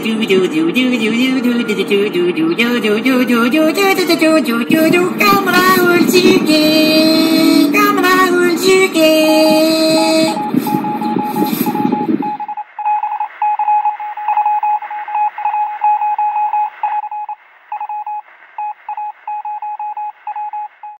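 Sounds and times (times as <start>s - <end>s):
morse code beeps: 8.9s - 21.0s.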